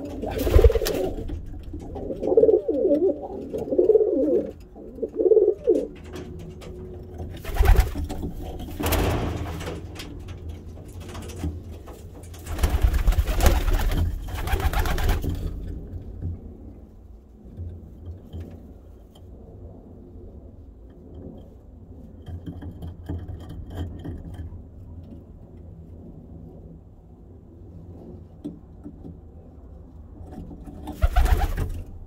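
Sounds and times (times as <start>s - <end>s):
pigeons cooing: 0.0s - 6.0s.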